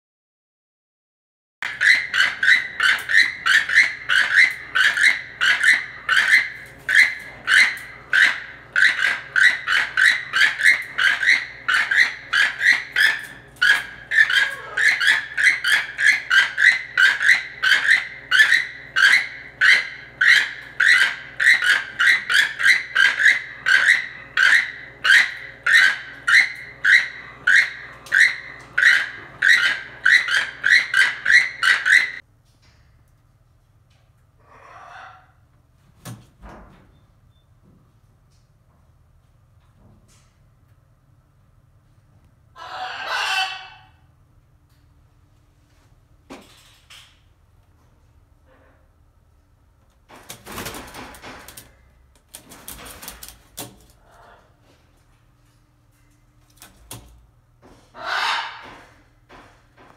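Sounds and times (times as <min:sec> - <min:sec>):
toucan calls: 0:01.6 - 0:32.2, 0:42.6 - 0:44.1, 0:57.9 - 0:58.9.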